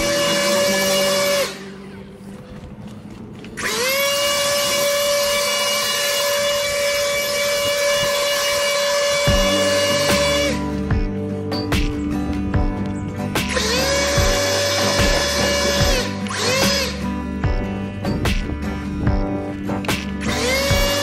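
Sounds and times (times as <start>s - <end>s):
handheld yard tool motor whining: 0.0s - 1.8s, 3.6s - 11.1s, 13.5s - 17.6s, 19.2s - 21.0s.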